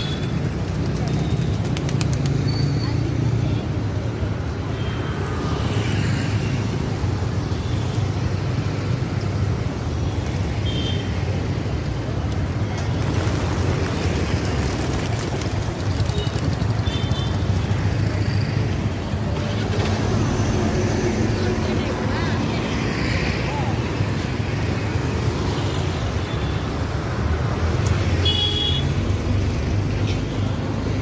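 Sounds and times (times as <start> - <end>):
road traffic: 0.0 - 31.0
pigeon wingbeats clattering: 0.5 - 2.5, 12.9 - 17.6.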